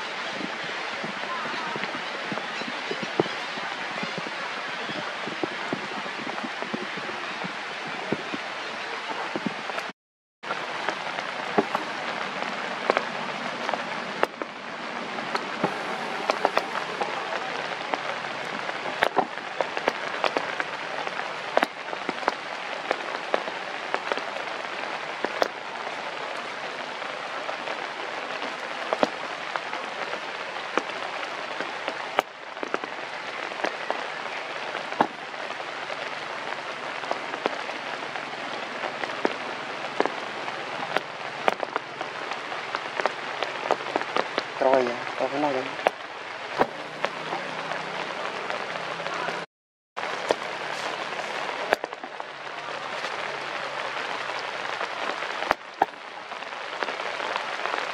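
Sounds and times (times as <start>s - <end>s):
rain hissing on leaves: 10.5s - 57.9s
raindrop ticks: 38.8s - 49.4s.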